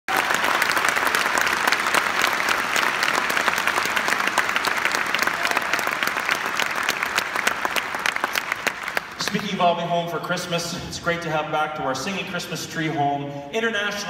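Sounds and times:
audience applauding: 0.1s - 9.7s.

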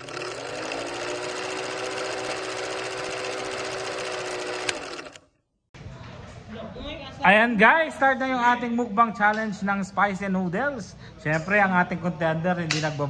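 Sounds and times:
film projector clatter: 0.0s - 5.2s.

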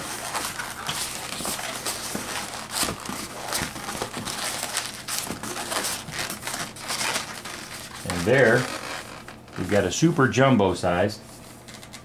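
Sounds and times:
balloons rubbing and scraping: 0.0s - 10.4s.

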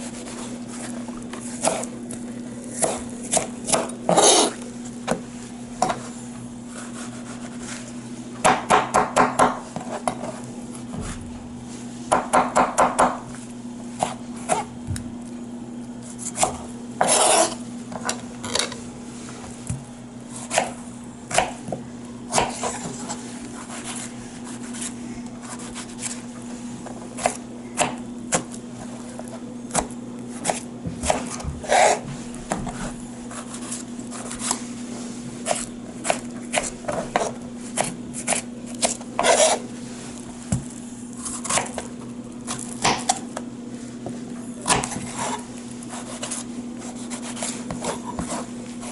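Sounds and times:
knife chopping on plastic board: 2.8s - 5.2s, 8.4s - 10.2s, 12.1s - 13.3s, 20.4s - 23.0s, 27.2s - 28.6s, 29.7s - 32.8s, 35.4s - 39.6s, 41.3s - 41.9s, 42.5s - 43.2s, 44.6s - 45.4s, 47.0s - 48.9s.

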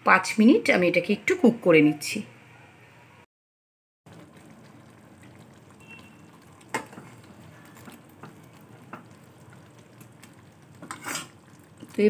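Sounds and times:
curry bubbling in a pan: 4.1s - 12.0s.

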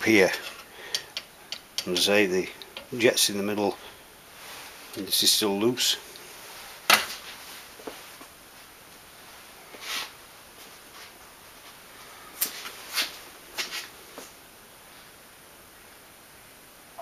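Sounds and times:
faint steady background hiss: 0.0s - 17.0s
short breathy hiss: 9.8s - 10.1s.

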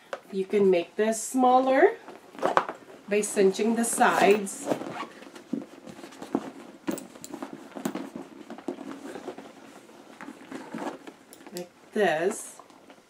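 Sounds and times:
bag rustling: 2.0s - 11.6s.

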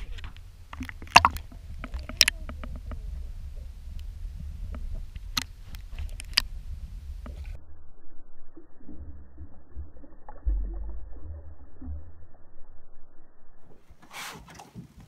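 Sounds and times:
underwater clicks and knocks: 0.0s - 6.5s
underwater low rumble: 0.0s - 14.0s.

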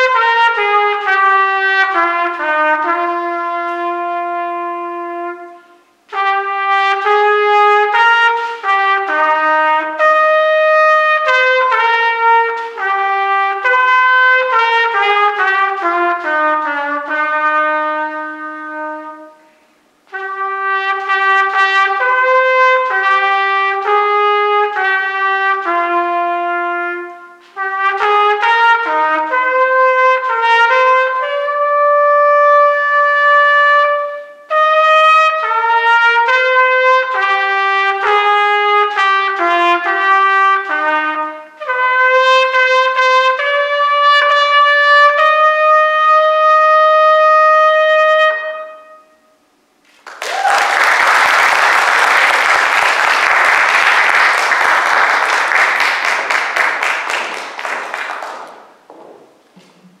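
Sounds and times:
solo trumpet melody: 0.0s - 49.8s
applause: 49.9s - 58.8s.

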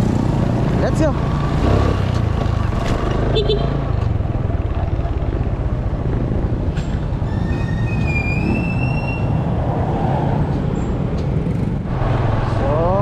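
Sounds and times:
road noise: 0.0s - 13.0s
high squealing tone: 7.2s - 9.6s.

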